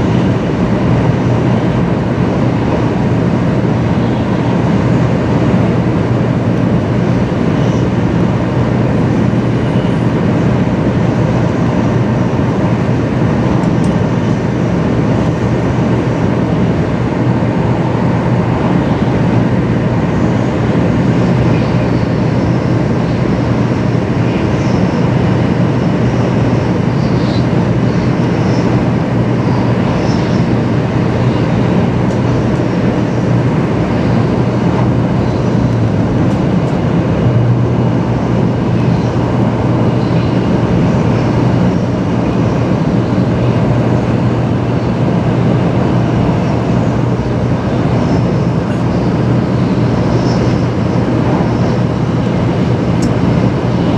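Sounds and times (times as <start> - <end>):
train running at speed from inside: 0.0 - 53.9.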